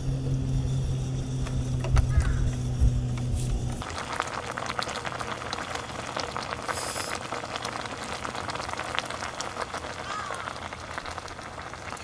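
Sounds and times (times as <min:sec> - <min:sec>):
food sizzling in a pan: 0:03.8 - 0:12.0.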